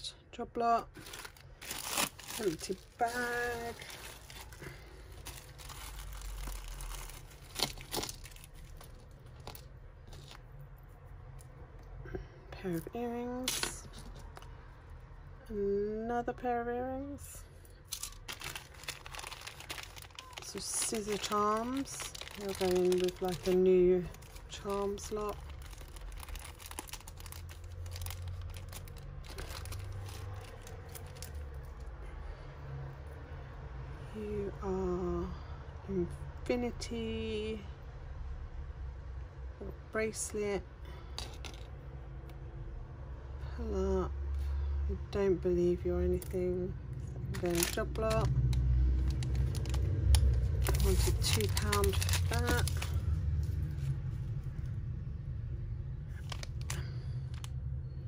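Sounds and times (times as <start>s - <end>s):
plastic bags rustling: 0.9s - 10.5s, 17.8s - 31.8s, 47.2s - 54.3s, 56.1s - 57.5s.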